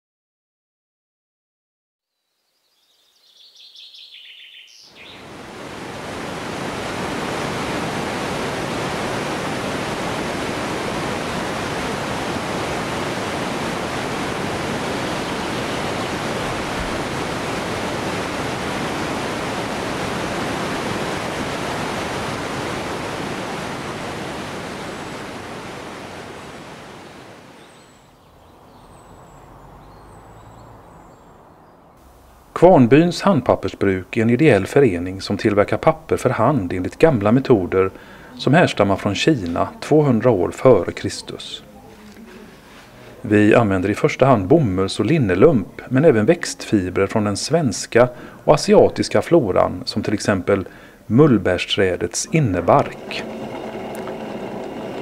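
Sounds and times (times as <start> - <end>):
faint bird chirps: 2.0 - 5.3
rushing water roar: 5.0 - 27.7, 51.6 - 55.0.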